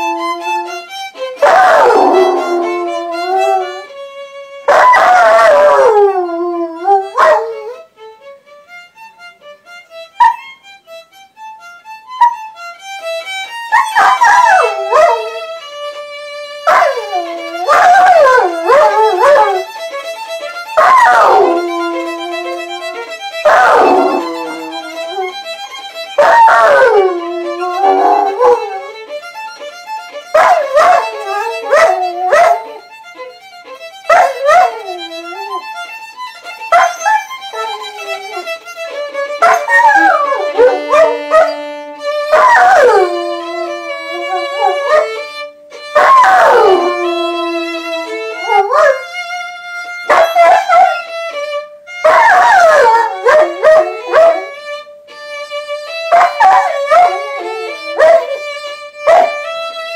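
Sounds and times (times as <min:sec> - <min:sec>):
dog howling: 0:00.0 - 0:03.9, 0:04.7 - 0:07.8, 0:13.7 - 0:15.6, 0:16.6 - 0:19.7, 0:20.4 - 0:29.0, 0:30.2 - 0:33.3, 0:34.1 - 0:35.7, 0:36.7 - 0:45.3, 0:45.9 - 0:49.1, 0:50.1 - 0:51.0, 0:52.0 - 0:54.6, 0:55.9 - 0:59.4
violin playing: 0:00.0 - 0:59.9.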